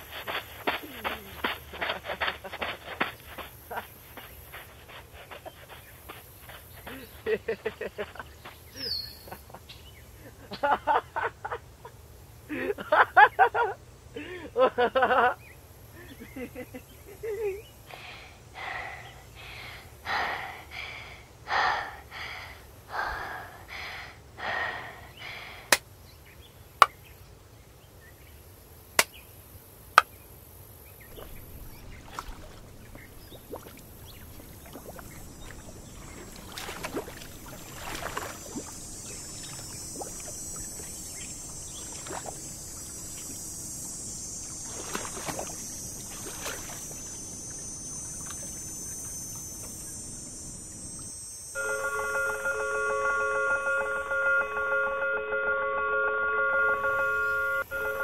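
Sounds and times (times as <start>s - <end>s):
steady high hiss: 0.0s - 58.0s
person laughing: 0.7s - 3.0s, 3.7s - 4.0s, 6.9s - 9.6s, 12.5s - 15.4s, 16.0s - 17.7s
shallow water splashing: 31.1s - 51.2s.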